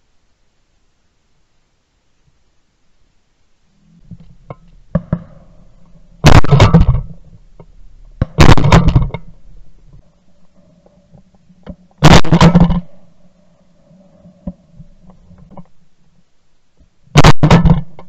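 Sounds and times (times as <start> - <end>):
shotgun shots: 4.5 - 7.4, 8.2 - 9.5, 12.0 - 12.9, 17.2 - 17.9.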